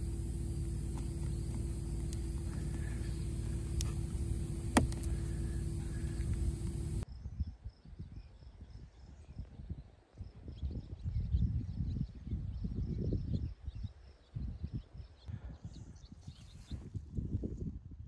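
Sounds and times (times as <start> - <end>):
faint insect chirps: 0.0 - 7.0
sharp clicks: 0.0 - 7.0
steady hum with hiss: 0.0 - 7.0
wind buffeting microphone: 0.0 - 18.0.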